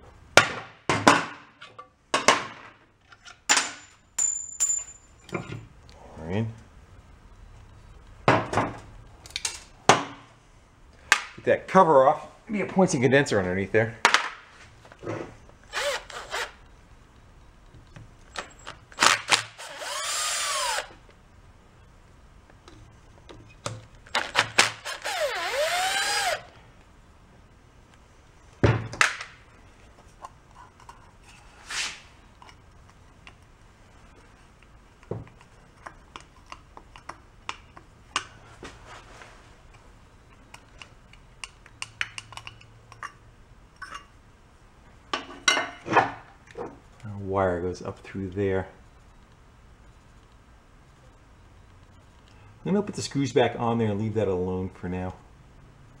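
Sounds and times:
metal parts and tools clinking: 3.1 - 5.6
cordless driver motor whirring: 15.7 - 16.6, 19.3 - 20.9, 24.3 - 26.5.

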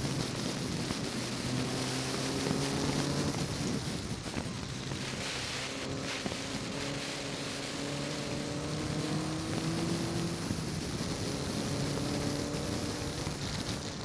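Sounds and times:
wind and road noise: 0.0 - 14.0
car engine revving hard: 1.1 - 3.7, 5.0 - 13.4.

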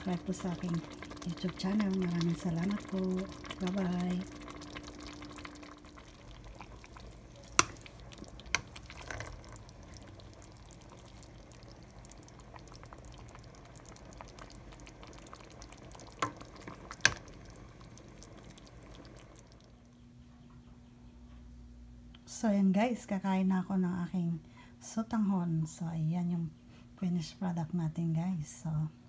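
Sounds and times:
soup sloshing: 0.0 - 19.6.

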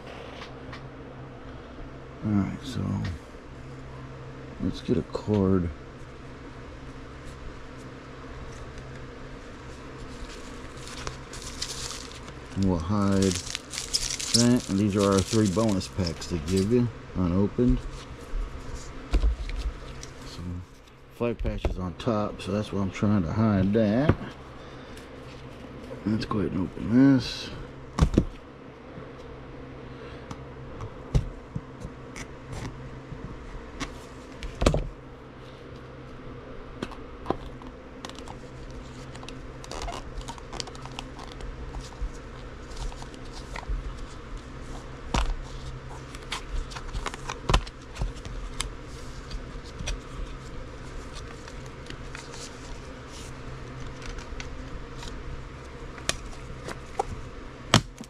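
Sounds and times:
steady low hum: 0.0 - 58.0
cardboard and wrapper rustling: 9.4 - 16.8, 38.1 - 58.0.

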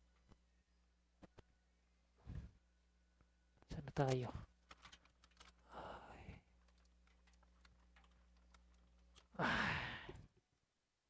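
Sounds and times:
faint steady hum: 0.0 - 11.0
man sighing: 9.3 - 10.3.

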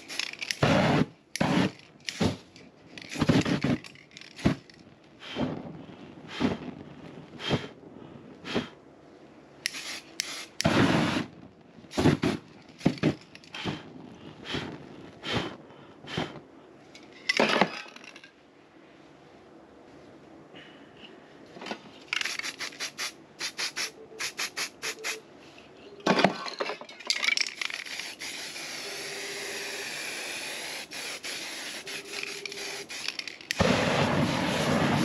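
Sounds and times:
crackly scraping strokes: 0.0 - 7.7, 21.8 - 25.8, 27.0 - 35.0.

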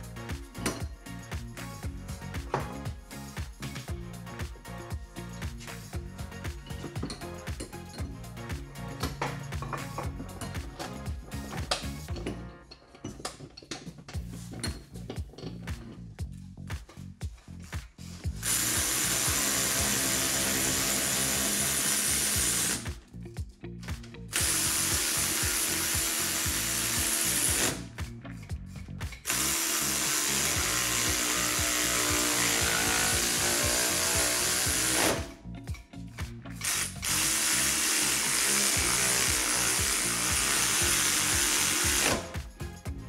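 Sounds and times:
power ratchet whirring: 18.3 - 23.0, 24.3 - 28.0, 29.2 - 35.4, 36.5 - 42.5.

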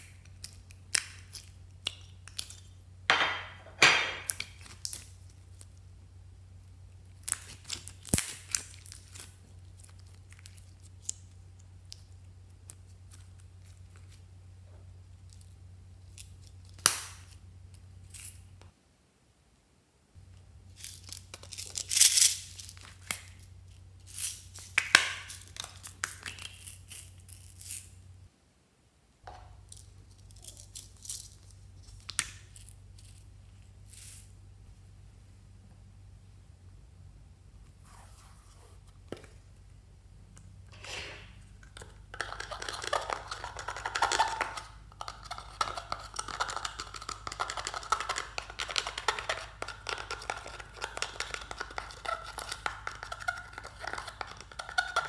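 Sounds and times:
low steady hum: 0.0 - 55.0
slime crackling and popping: 7.2 - 14.1, 41.8 - 55.0.

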